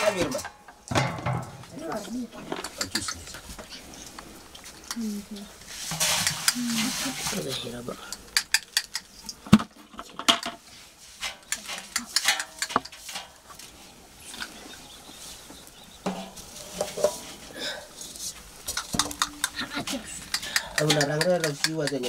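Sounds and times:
metal pots clinking: 0.0s - 3.4s, 5.8s - 13.6s, 16.0s - 17.8s, 18.6s - 22.0s
grain rattling in a pot: 4.8s - 9.4s, 16.0s - 22.0s.

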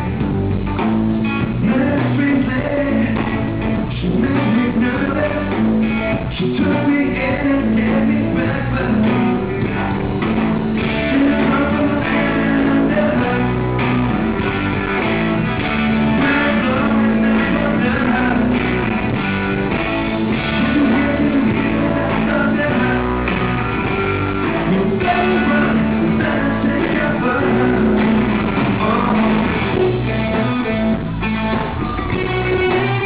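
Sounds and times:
live rock band playing: 0.0s - 33.0s
man singing into microphone: 1.6s - 9.6s, 11.0s - 13.8s, 16.2s - 18.9s, 20.4s - 23.7s, 24.5s - 30.3s.

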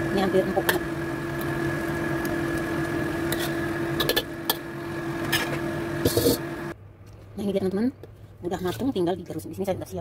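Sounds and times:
steady mechanical hum: 0.0s - 10.0s
metal ladle scraping a wok: 3.2s - 4.6s, 5.2s - 6.4s.

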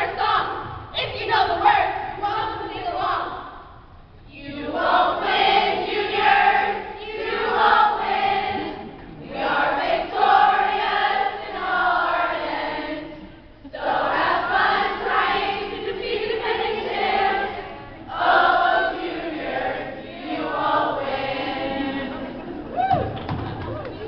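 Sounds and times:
girls singing a cheer: 4.4s - 22.7s.

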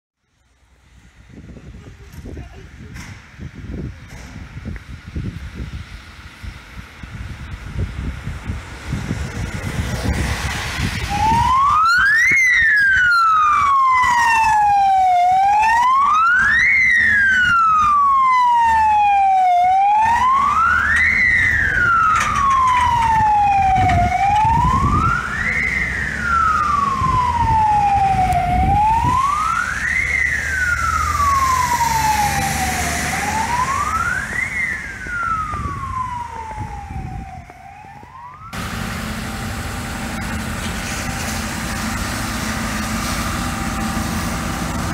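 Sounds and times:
truck engine rumble: 0.2s - 44.9s
fire engine siren wailing: 5.0s - 44.9s.

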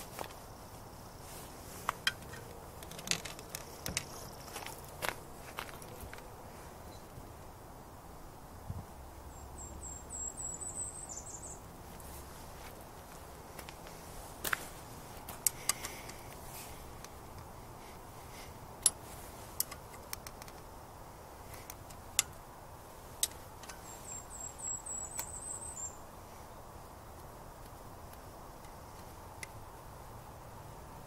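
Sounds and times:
bird trill: 9.3s - 11.7s, 23.6s - 26.1s.

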